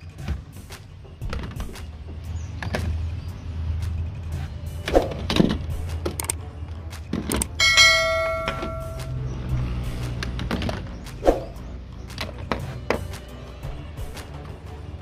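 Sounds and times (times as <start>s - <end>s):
bright bell ding: 7.6s - 9.2s.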